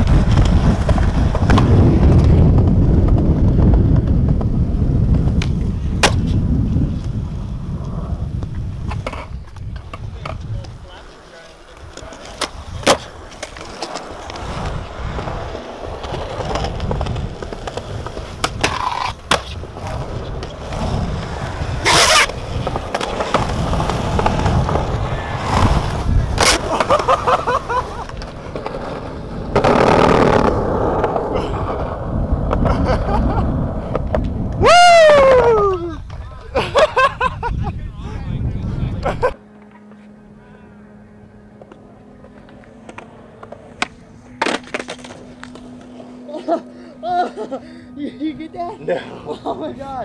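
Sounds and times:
skateboard wheels rolling on concrete: 0.0s - 50.0s
skateboard clacking on ground: 8.4s - 27.4s, 41.6s - 46.0s.

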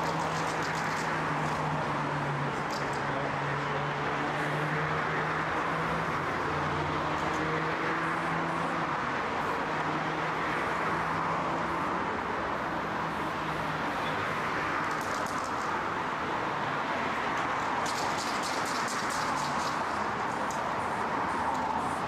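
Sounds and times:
traffic hiss: 0.0s - 22.0s.

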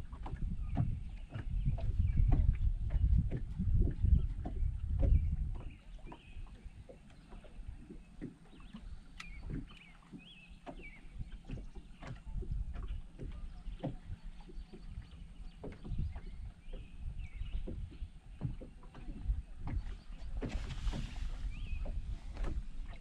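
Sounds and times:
waves slapping against a boat hull: 0.0s - 23.0s.

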